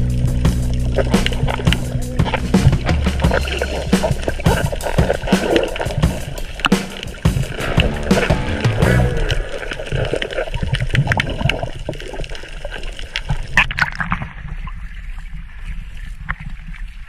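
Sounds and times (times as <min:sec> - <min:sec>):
muffled underwater gurgling: 0:00.0 - 0:12.8.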